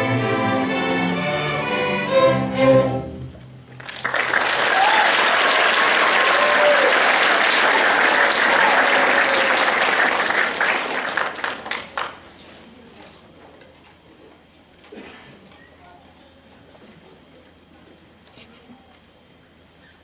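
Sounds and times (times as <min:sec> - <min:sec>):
string orchestra chord: 0:00.0 - 0:03.4
audience applauding: 0:03.7 - 0:12.3.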